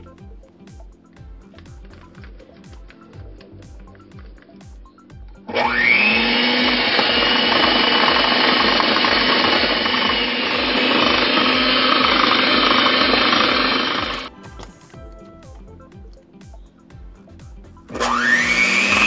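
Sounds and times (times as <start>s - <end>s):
background music with steady beat: 0.0s - 19.0s
electric mixer whirring: 5.5s - 14.3s, 17.9s - 19.0s.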